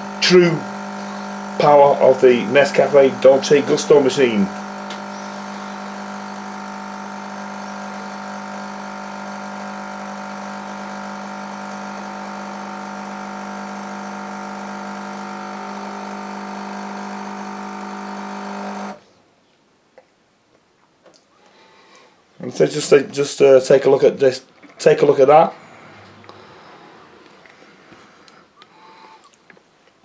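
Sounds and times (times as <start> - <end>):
coffee machine pump humming: 0.0 - 19.0, 24.6 - 29.3.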